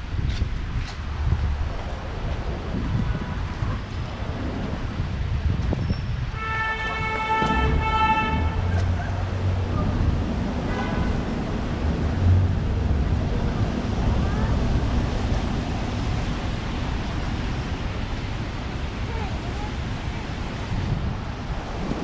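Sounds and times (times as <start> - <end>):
wet street traffic rumble: 0.0 - 22.0
wind on microphone: 0.0 - 22.0
car horn: 6.3 - 9.0, 10.6 - 11.3.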